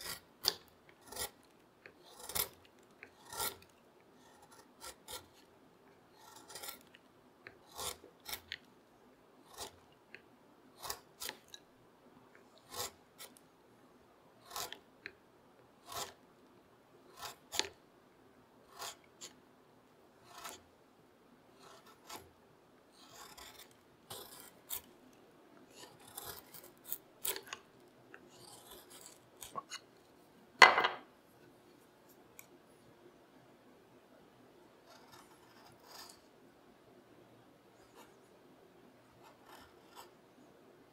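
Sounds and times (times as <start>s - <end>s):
carving gouge scraping wood: 0.0s - 5.5s, 6.2s - 8.7s, 9.5s - 9.8s, 10.8s - 11.6s, 12.6s - 13.4s, 14.4s - 14.8s, 15.8s - 16.2s, 17.1s - 17.8s, 18.7s - 19.4s, 20.2s - 20.6s, 21.6s - 22.3s, 23.0s - 24.9s, 25.7s - 27.6s, 28.3s - 29.8s, 34.9s - 36.2s, 39.2s - 40.1s.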